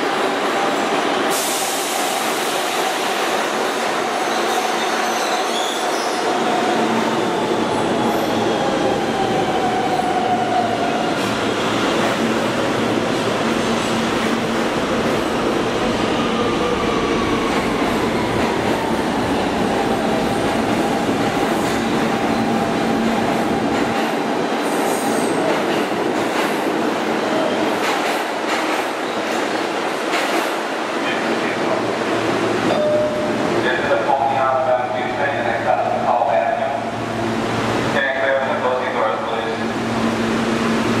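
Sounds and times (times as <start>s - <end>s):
subway train rumbling on rails: 0.0s - 41.0s
train wheel squeal: 4.2s - 6.3s.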